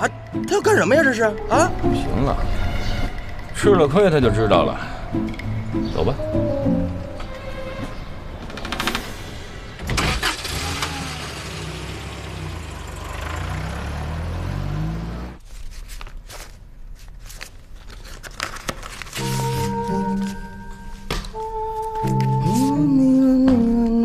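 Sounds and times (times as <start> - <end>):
car engine starting and revving: 8.1 - 15.4.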